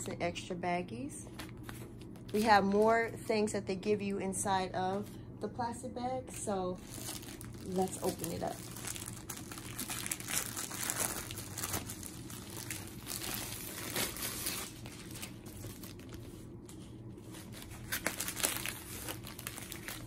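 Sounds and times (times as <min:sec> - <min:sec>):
plastic bag crinkling: 0:06.8 - 0:16.5, 0:17.2 - 0:20.0.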